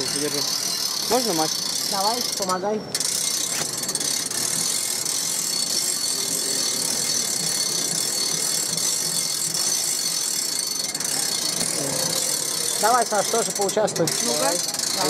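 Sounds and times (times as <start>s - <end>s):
coin press gears grinding: 0.0s - 15.0s.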